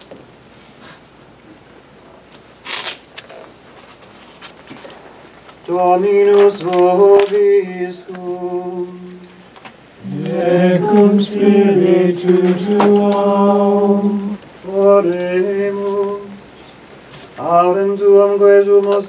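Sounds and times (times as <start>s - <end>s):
several voices chanting: 5.7s - 9.4s, 10.0s - 16.4s
man chanting on one pitch: 10.0s - 16.4s, 17.4s - 19.0s.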